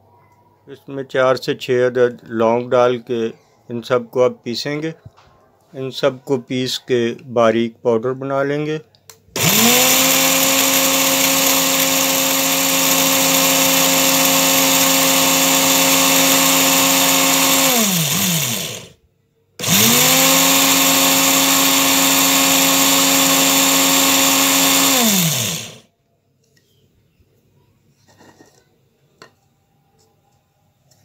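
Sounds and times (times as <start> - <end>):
electric spice grinder motor: 9.4 - 19.0, 19.6 - 25.9.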